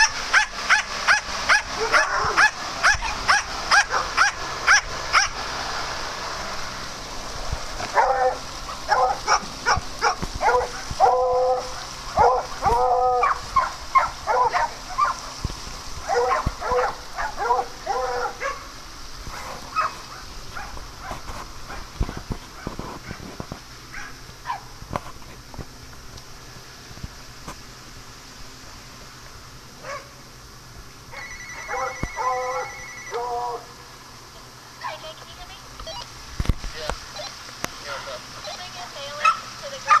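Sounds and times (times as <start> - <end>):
dogs barking and yipping: 0.0 - 5.5, 7.8 - 15.4, 16.0 - 24.7, 29.8 - 30.2, 31.1 - 33.7, 39.2 - 40.0.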